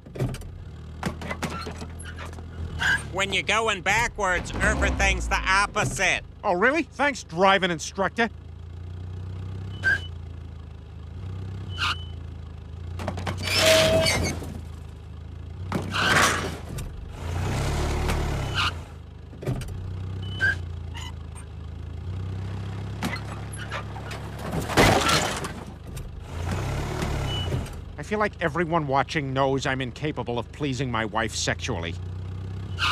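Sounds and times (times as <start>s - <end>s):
cartoon car engine running: 0.0s - 32.9s
crashes and clatters: 23.0s - 26.0s.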